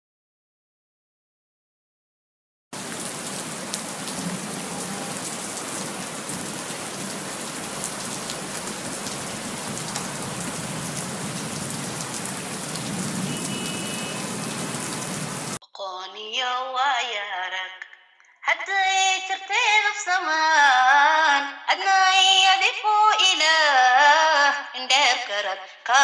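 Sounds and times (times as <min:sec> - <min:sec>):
steady rain falling: 0:02.8 - 0:15.6.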